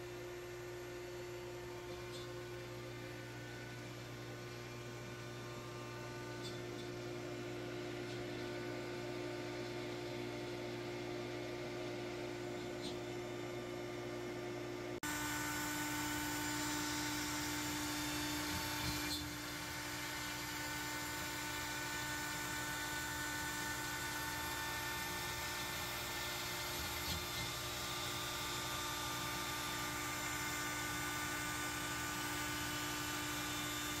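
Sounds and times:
router motor whine: 0:15.0 - 0:34.0.

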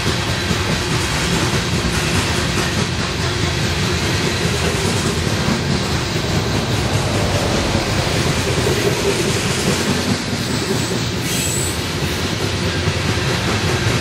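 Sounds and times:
train wheels clattering over rail joints: 0:00.0 - 0:14.0
high wheel squeal: 0:05.5 - 0:12.2.

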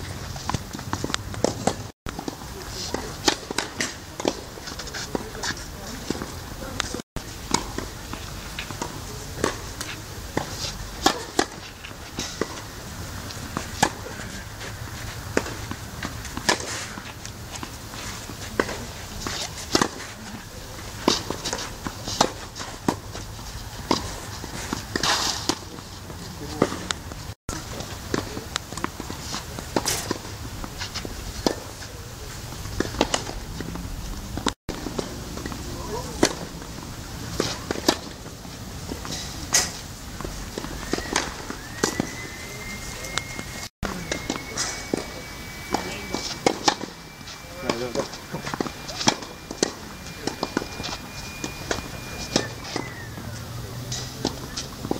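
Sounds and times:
tennis ball struck by rackets: 0:08.6 - 0:12.6, 0:44.1 - 0:53.1
footstep scuffs: 0:13.2 - 0:54.9.

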